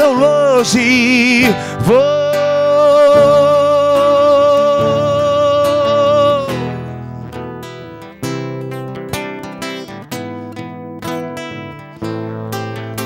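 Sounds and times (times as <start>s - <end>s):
man singing long note: 0.0s - 6.9s
plucked acoustic guitar: 0.0s - 13.0s.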